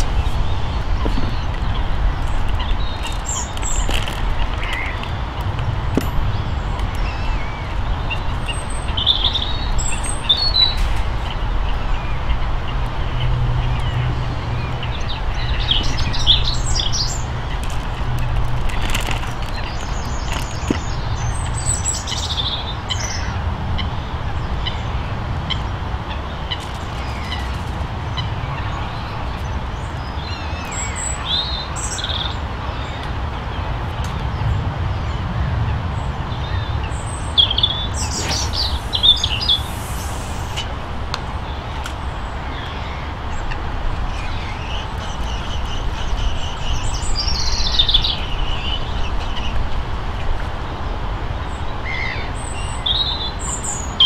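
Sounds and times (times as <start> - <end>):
small birds chirping: 0.0 - 23.3, 36.0 - 49.6
steady low rumble: 33.9 - 42.5.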